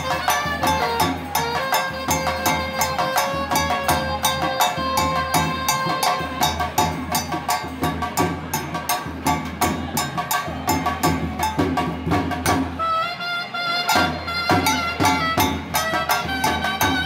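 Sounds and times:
saxophone melody: 0:00.0 - 0:06.6, 0:12.8 - 0:17.0.

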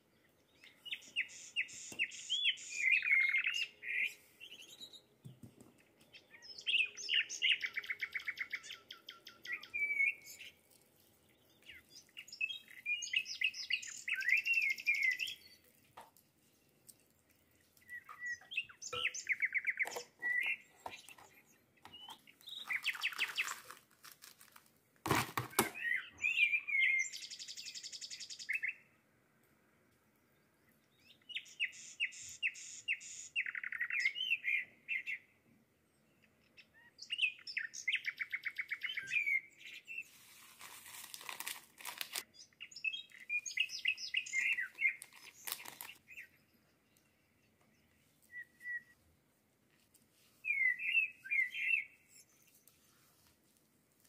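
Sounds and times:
songbird trilling and chirping: 0:00.2 - 0:05.2, 0:05.8 - 0:16.0, 0:16.6 - 0:23.7, 0:25.8 - 0:28.8, 0:30.8 - 0:35.3, 0:36.3 - 0:40.1, 0:42.2 - 0:49.0, 0:50.4 - 0:52.7.

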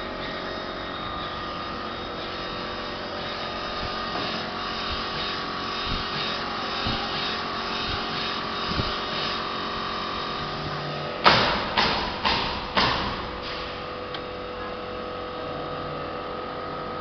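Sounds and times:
printer motor whine: 0:00.0 - 0:11.8.

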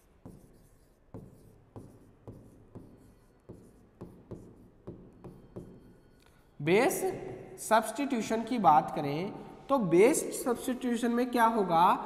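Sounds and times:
chalk tapping and scratching: 0:00.0 - 0:06.6.

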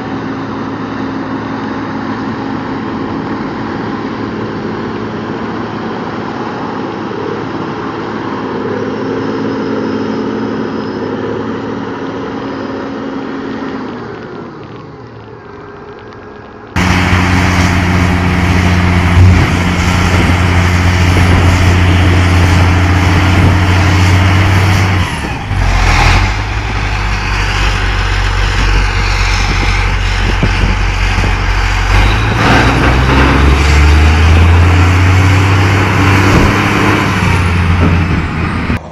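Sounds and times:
dump truck diesel revving: 0:00.0 - 0:14.8, 0:16.7 - 0:38.9
tractor diesel engine running: 0:00.0 - 0:38.9.

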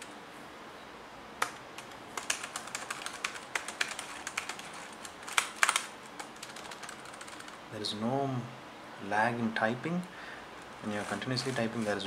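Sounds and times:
keyboard keys clicking: 0:01.4 - 0:07.6.

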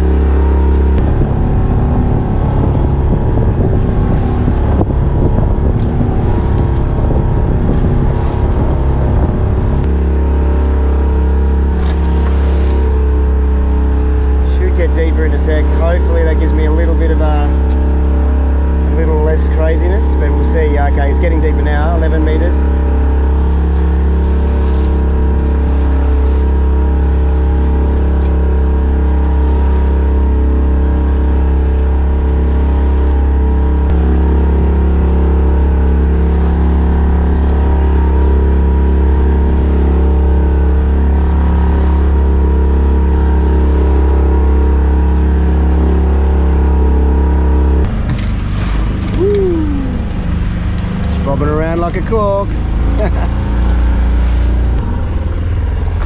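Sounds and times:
boat engine humming: 0:00.0 - 0:56.0
water splashing: 0:00.0 - 0:56.0
wind: 0:00.0 - 0:56.0
short falling tone: 0:48.9 - 0:50.8.

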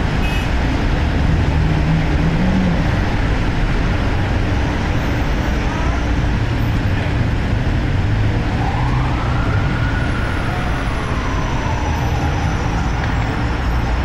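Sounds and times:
street traffic rumble: 0:00.0 - 0:14.0
distant siren wailing: 0:08.3 - 0:14.0.

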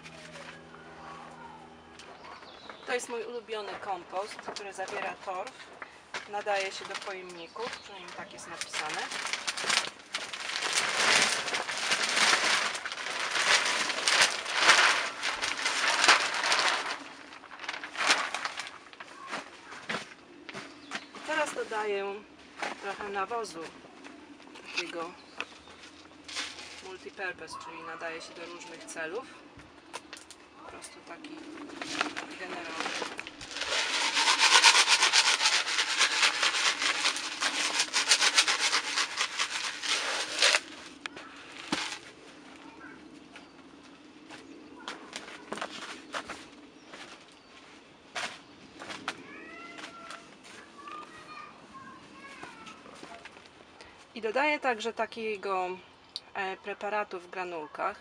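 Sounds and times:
plastic sack rustling: 0:06.4 - 0:20.1, 0:25.8 - 0:27.0, 0:31.6 - 0:42.2
compost pouring: 0:08.4 - 0:19.4, 0:31.8 - 0:42.1.

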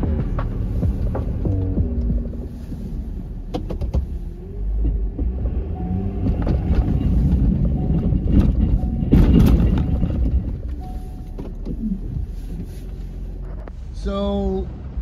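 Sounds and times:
plow blade knocking: 0:00.0 - 0:13.7
clunks: 0:00.0 - 0:14.1
truck engine rumbling: 0:00.0 - 0:15.0.

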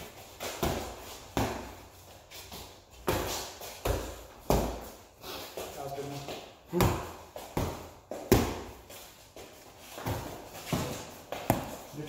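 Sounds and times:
boxing gloves slapping: 0:00.0 - 0:01.9, 0:02.6 - 0:05.0, 0:06.7 - 0:08.9, 0:09.9 - 0:11.9.

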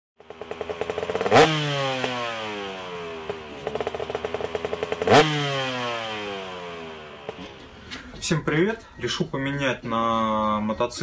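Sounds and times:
motorcycle engine revving: 0:00.2 - 0:08.2.

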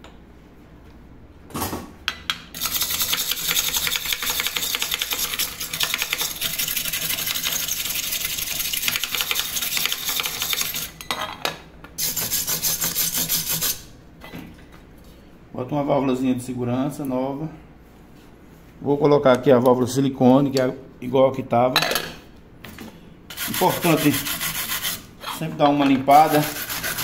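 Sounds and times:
tool scraping metal lid: 0:02.6 - 0:10.9, 0:26.1 - 0:27.0.

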